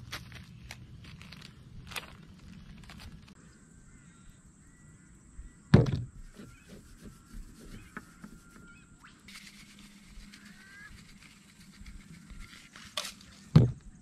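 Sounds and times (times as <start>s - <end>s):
bird chirps: 3.4s - 9.4s
salt shaker rattling: 9.3s - 13.0s.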